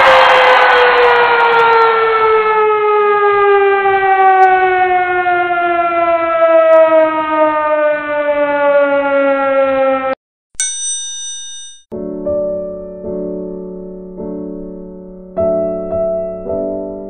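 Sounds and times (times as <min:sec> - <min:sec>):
motor siren winding down: 0:00.0 - 0:10.2.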